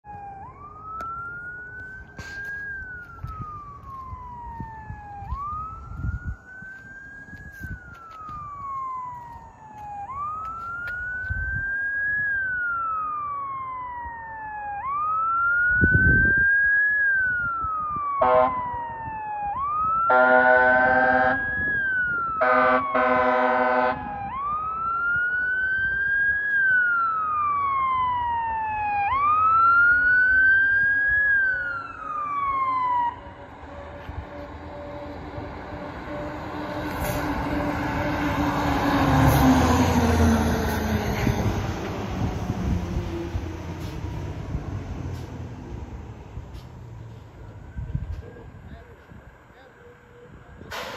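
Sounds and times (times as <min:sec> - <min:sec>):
wail siren: 0:00.0 - 0:50.8
air horn blasts: 0:18.2 - 0:18.7, 0:20.1 - 0:21.4, 0:22.4 - 0:24.0.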